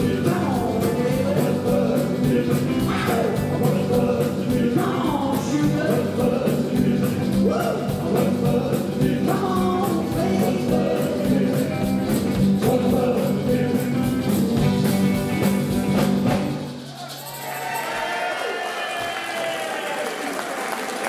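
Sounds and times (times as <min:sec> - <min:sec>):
man singing: 0:00.0 - 0:15.0
electric guitars: 0:00.0 - 0:17.0
drum kit beat: 0:00.0 - 0:17.4.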